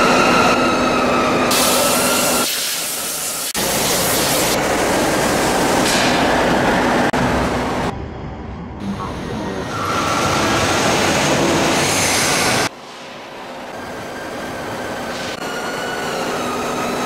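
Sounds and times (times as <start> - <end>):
low rumble: 7.1 - 9.7.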